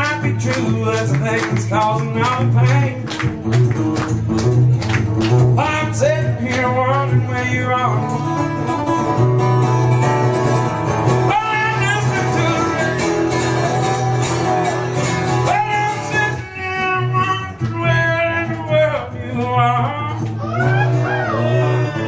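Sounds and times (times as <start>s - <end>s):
man singing: 0.0s - 3.3s, 5.5s - 8.3s, 11.2s - 13.4s, 15.3s - 20.3s
acoustic guitar strumming: 0.0s - 22.0s.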